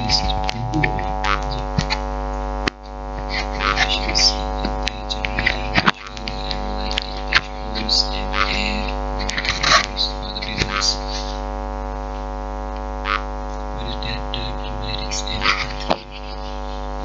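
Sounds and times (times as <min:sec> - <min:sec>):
buzzing drone: 0:00.0 - 0:17.0.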